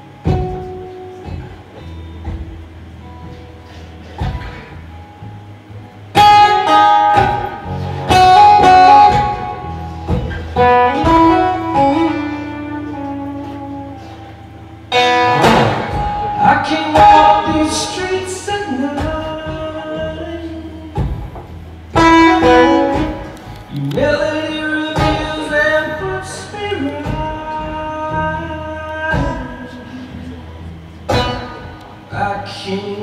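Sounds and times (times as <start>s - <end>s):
acoustic guitar chords ringing: 0.0s - 33.0s.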